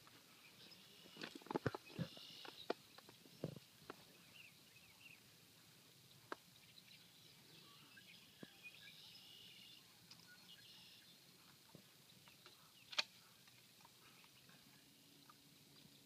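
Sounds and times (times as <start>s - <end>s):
faint bird chirps: 0.3s - 5.3s, 6.0s - 16.0s.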